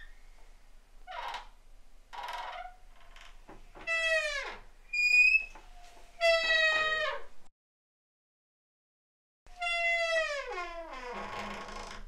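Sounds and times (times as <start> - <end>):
door hinges creaking and squeaking: 1.1 - 1.6, 2.2 - 7.3, 9.5 - 12.0.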